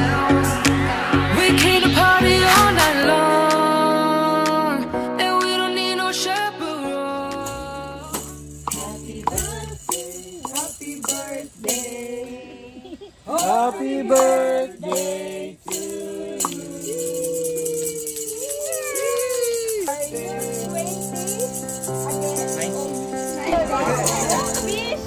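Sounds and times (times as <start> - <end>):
pop music with sung vocals: 0.0 - 17.3.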